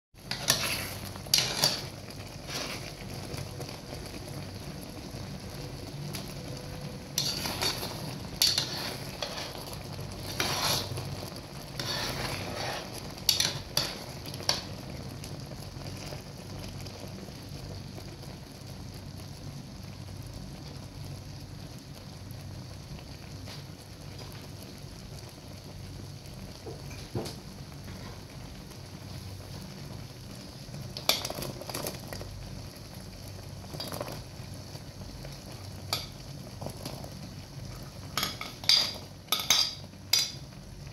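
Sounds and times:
bursts of cooking noise: 0:00.2 - 0:40.9
sauce bubbling in a pan: 0:00.2 - 0:40.9.

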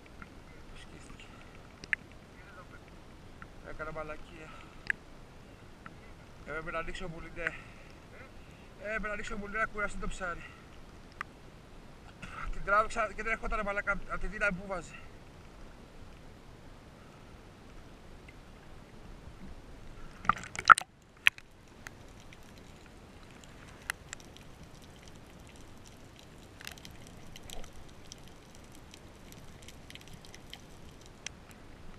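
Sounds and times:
faint clicks: 0:00.0 - 0:02.2, 0:04.6 - 0:05.0, 0:10.7 - 0:11.3, 0:20.2 - 0:31.6
water lapping and sloshing: 0:19.4 - 0:31.9
splashing: 0:20.1 - 0:31.4.

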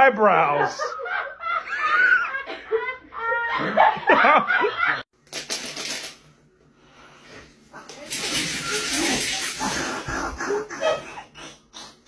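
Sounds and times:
person laughing: 0:09.6 - 0:12.0.

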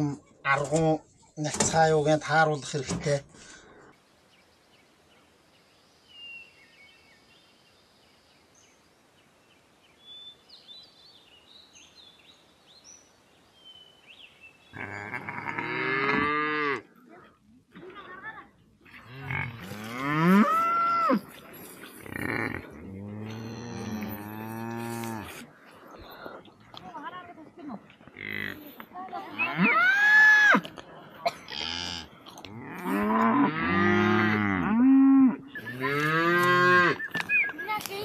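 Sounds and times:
cattle mooing: 0:14.8 - 0:16.9, 0:18.9 - 0:25.5, 0:29.3 - 0:30.8, 0:31.4 - 0:37.0
faint bird chirps: 0:35.4 - 0:38.0.

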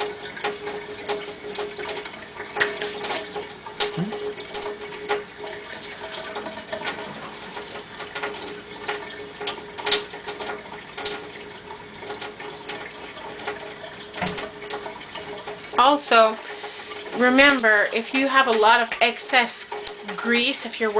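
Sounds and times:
tap running into steel sink: 0:14.2 - 0:15.5.

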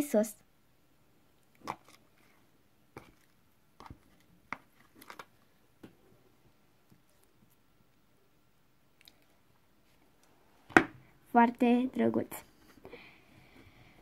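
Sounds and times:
slime squelching: 0:01.4 - 0:05.5.

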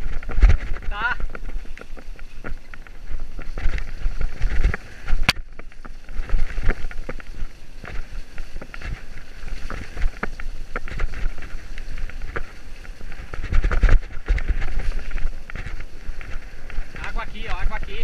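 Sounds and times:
bike rattling over bumps: 0:00.0 - 0:18.0
bike tyre noise: 0:00.0 - 0:18.0
wind rushing over microphone: 0:00.0 - 0:18.0.

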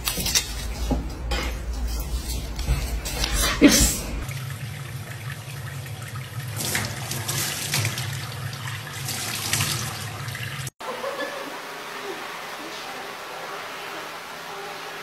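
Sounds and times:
tap water running into steel sink: 0:04.2 - 0:10.7.

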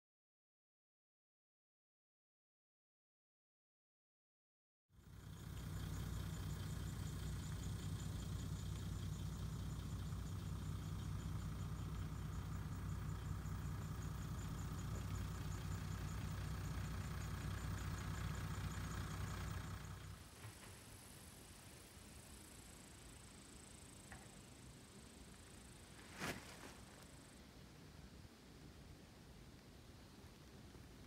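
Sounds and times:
car engine running: 0:05.0 - 0:27.4
road noise: 0:05.0 - 0:31.0.

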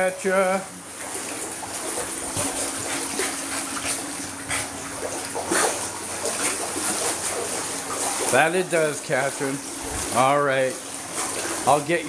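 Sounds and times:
dog splashing water: 0:00.0 - 0:12.0.

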